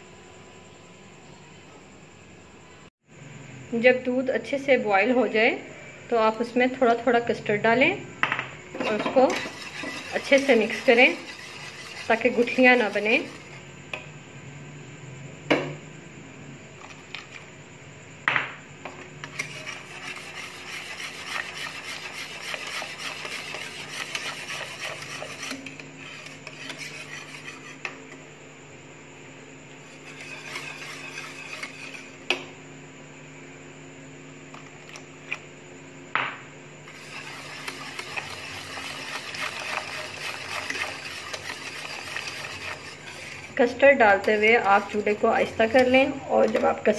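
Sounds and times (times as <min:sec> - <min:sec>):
whisk clinking against pot: 0:08.8 - 0:13.5, 0:37.0 - 0:43.5
whisk scraping a metal pot: 0:08.8 - 0:13.6, 0:19.2 - 0:28.0, 0:29.8 - 0:32.2, 0:36.8 - 0:46.9.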